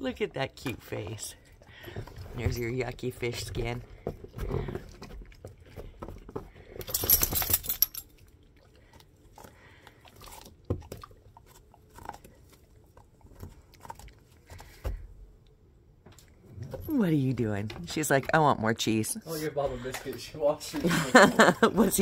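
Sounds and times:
dog chewing a treat: 0:00.4 - 0:06.8, 0:08.0 - 0:15.2.

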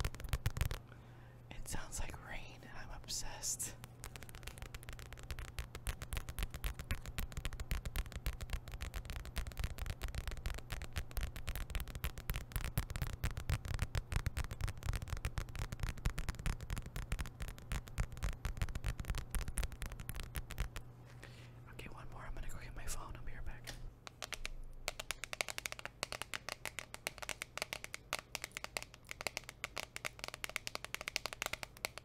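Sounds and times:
nails tapping on card packets: 0:03.2 - 0:20.8, 0:24.0 - 0:32.0.

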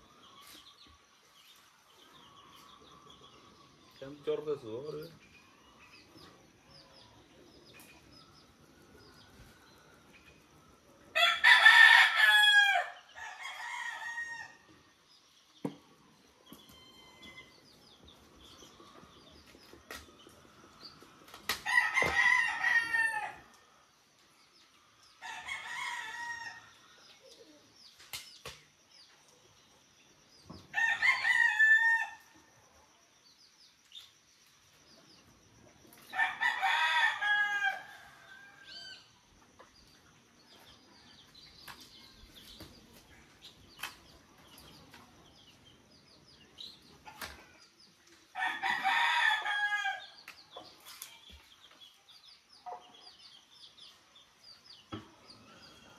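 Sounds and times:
rooster crowing: 0:11.2 - 0:14.6, 0:21.6 - 0:23.5, 0:30.7 - 0:32.3, 0:36.1 - 0:39.1, 0:48.4 - 0:50.1.

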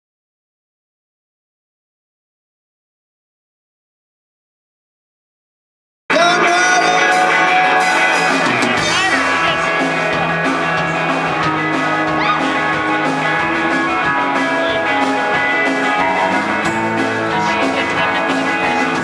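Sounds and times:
live country band playing: 0:06.1 - 0:19.0.

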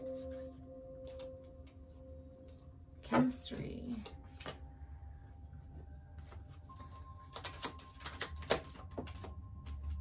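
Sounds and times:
quiet background music: 0:00.0 - 0:10.0
cards shuffling: 0:06.2 - 0:09.4.

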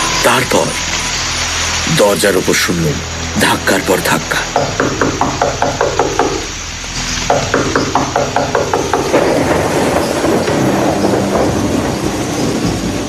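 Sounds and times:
rain: 0:00.0 - 0:13.0
pounding on a door: 0:04.6 - 0:06.5, 0:07.3 - 0:13.0
thunder: 0:08.9 - 0:13.0.

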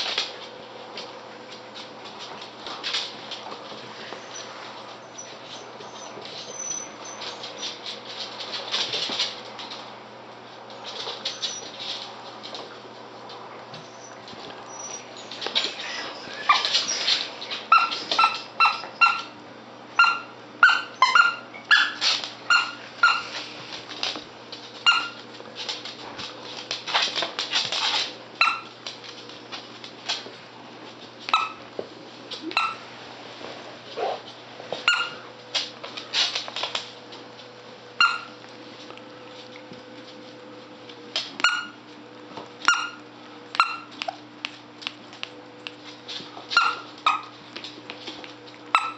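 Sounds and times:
squeaky dog toy squeaking: 0:20.0 - 0:23.2, 0:34.9 - 0:35.2.

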